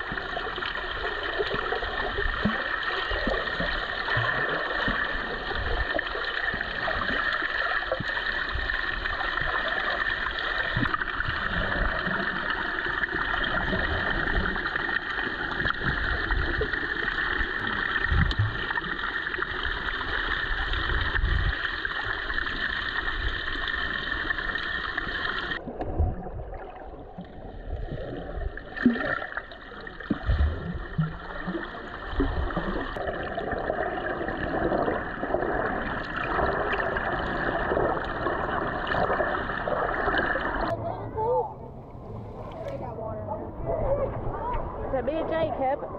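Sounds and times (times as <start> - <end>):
water sloshing and gurgling: 0.0 - 45.9
low underwater thumps: 25.6 - 26.6.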